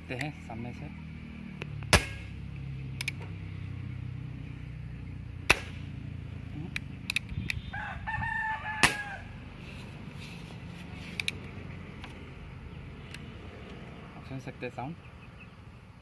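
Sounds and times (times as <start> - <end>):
air rifle shots: 1.9 - 2.4, 5.4 - 6.0, 8.8 - 9.2
rooster crowing: 7.6 - 9.5.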